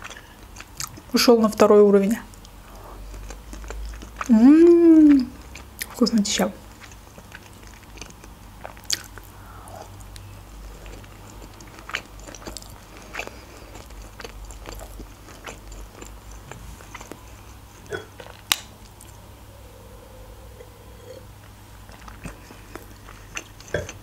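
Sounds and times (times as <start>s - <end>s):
low steady hum: 0.0s - 24.0s
wet chewing smacks and clicks: 6.7s - 9.3s, 10.0s - 19.2s.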